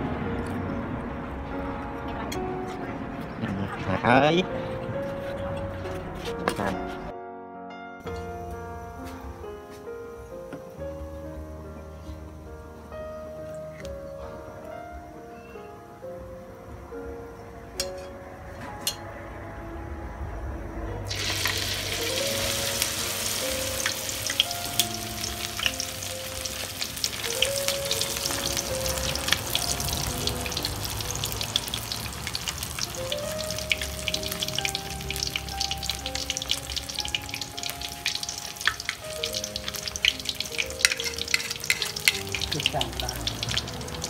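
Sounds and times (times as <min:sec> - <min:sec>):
background music with held notes: 0:00.0 - 0:44.0
batter hitting hot oil: 0:21.1 - 0:44.0
oil sizzling and popping: 0:21.1 - 0:44.0.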